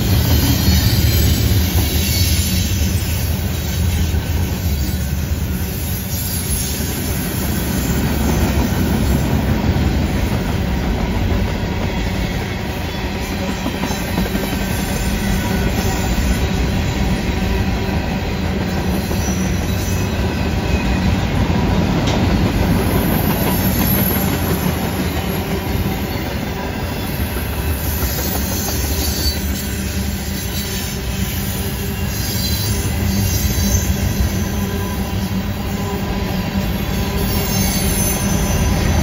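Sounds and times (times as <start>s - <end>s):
high wheel squeal: 0.0s - 8.2s, 18.2s - 21.3s, 22.8s - 39.0s
freight train wheels rumbling on rail: 0.0s - 39.0s.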